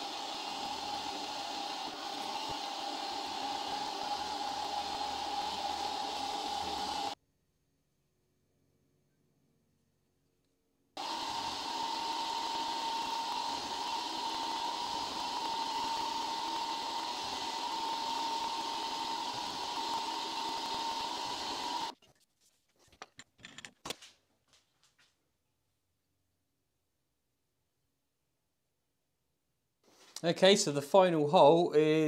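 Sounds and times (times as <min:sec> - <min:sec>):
drill spindle high-pitched hum: 0:00.0 - 0:07.2, 0:11.0 - 0:21.9.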